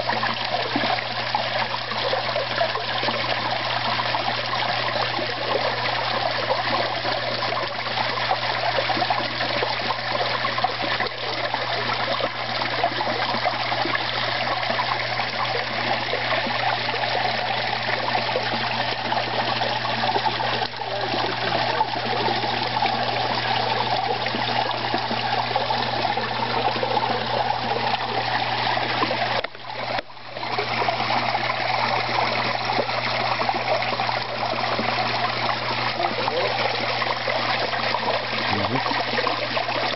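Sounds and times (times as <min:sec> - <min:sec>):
water trickling and splashing: 0:00.0 - 0:39.9.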